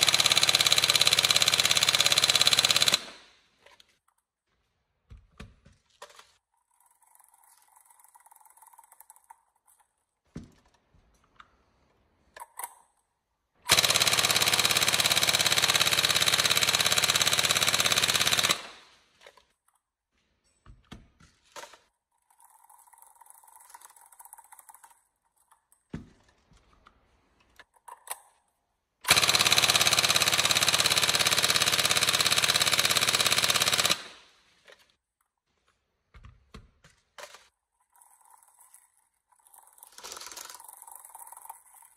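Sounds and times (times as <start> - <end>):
airsoft gun full-auto bursts: 0.0 - 3.4, 13.7 - 19.0, 29.0 - 34.4, 39.9 - 41.5.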